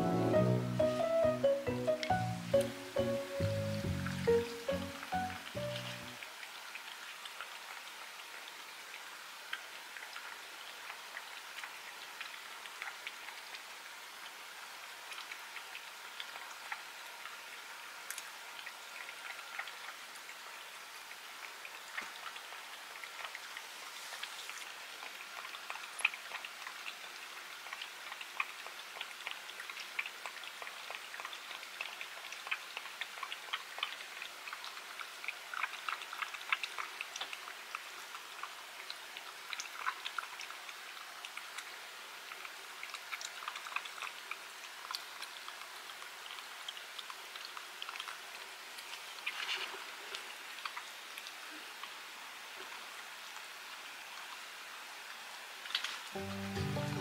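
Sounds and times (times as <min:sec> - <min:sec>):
cat licking and chewing: 0:21.4 - 0:52.0.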